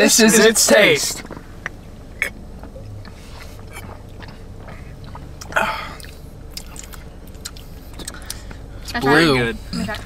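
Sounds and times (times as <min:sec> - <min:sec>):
swallowing and mouth clicks: 0:01.2 - 0:08.6.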